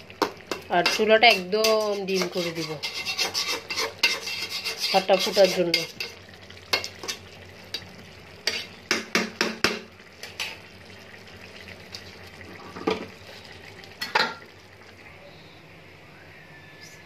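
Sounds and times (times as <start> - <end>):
rice sizzling: 0.0 - 15.3
spatula scraping metal pan: 0.8 - 6.2.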